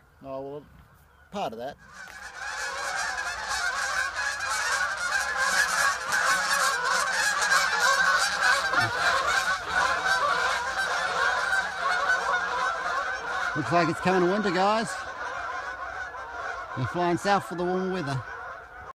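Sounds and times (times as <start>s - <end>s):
geese honking: 0.0s - 18.9s.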